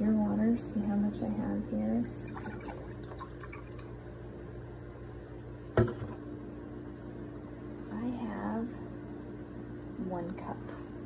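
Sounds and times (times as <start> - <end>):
steady low hum: 0.0 - 11.0
water trickling into a cup: 2.0 - 4.1.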